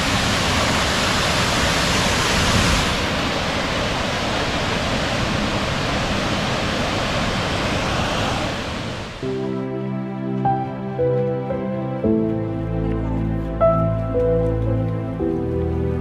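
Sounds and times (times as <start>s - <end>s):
waterfall rushing: 0.0s - 9.6s.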